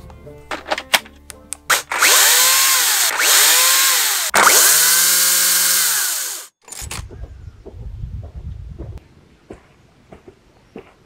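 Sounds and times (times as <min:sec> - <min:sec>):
electric chainsaw motor whining: 0:01.7 - 0:06.5
footsteps on dirt path: 0:06.8 - 0:11.0.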